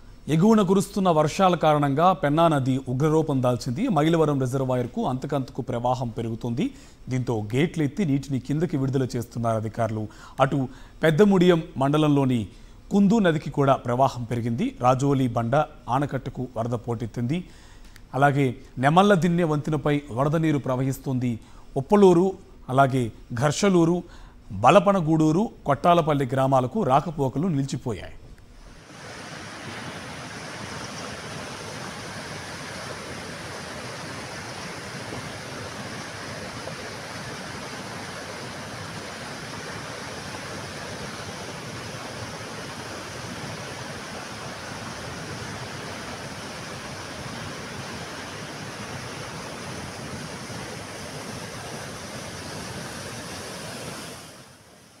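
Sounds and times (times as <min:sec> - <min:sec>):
floodwater rushing: 0:28.7 - 0:54.6.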